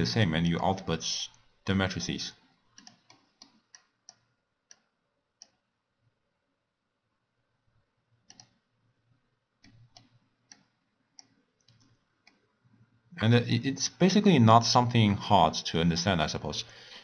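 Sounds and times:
computer mouse clicks: 2.7s - 5.6s, 8.2s - 8.6s, 9.6s - 12.5s.

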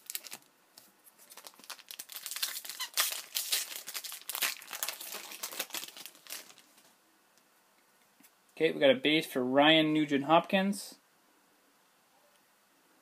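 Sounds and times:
foil wrapper tearing and crinkling: 0.0s - 6.9s.

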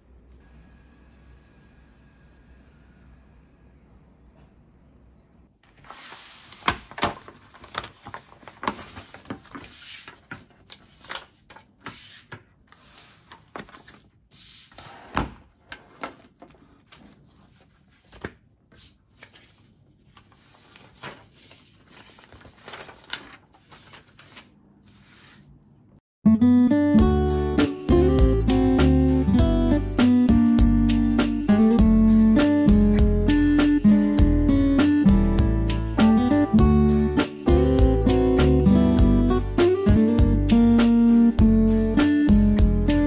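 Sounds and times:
pages rustling: 5.6s - 25.6s.

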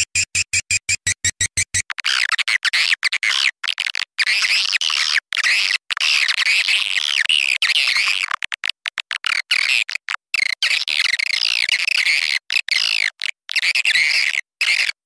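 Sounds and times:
recorded bird twittering: 0.0s - 1.8s.

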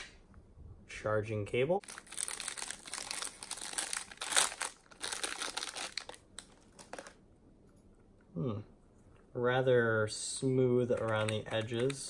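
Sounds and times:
plastic bag crinkling: 1.8s - 7.2s.

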